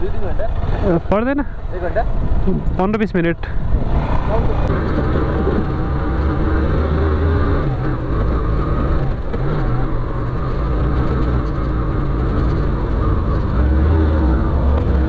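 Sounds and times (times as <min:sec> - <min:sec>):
motorcycle engine revving: 0:03.5 - 0:15.0.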